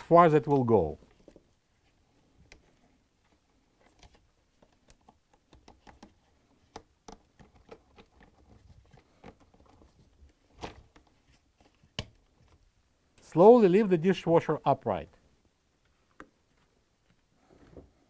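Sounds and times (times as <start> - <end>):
plastic parts clicking and rubbing: 1.0 - 13.3.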